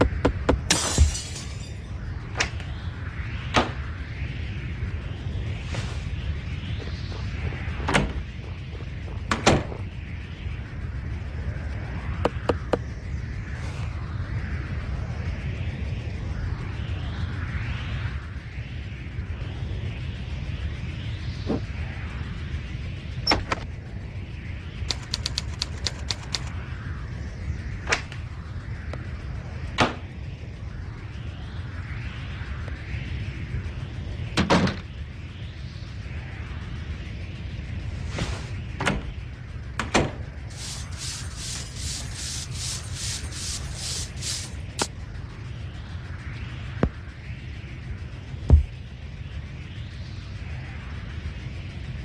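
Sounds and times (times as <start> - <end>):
low rumble: 0.0 - 52.0
low steady hum: 0.0 - 52.0
quick clicks: 24.9 - 26.5
slow swishing hiss: 40.3 - 51.9.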